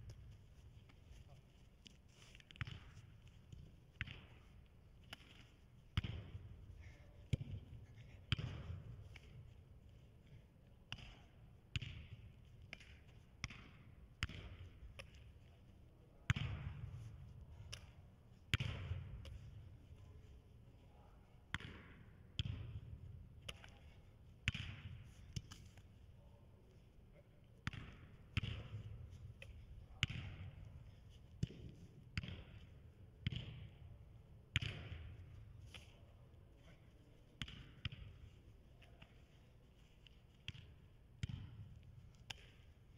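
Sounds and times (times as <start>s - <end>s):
soccer ball kicks echoing: 2.4s - 9.4s, 27.6s - 30.6s, 37.4s - 38.3s.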